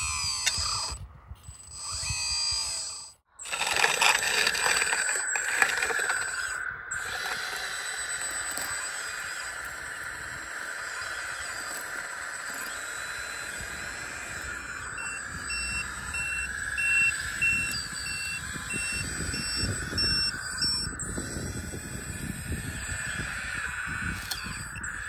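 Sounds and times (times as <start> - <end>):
model loader motor humming: 0.0 - 25.0
tyres crunching over gravel: 3.4 - 9.2
reversing beeper: 3.4 - 25.0.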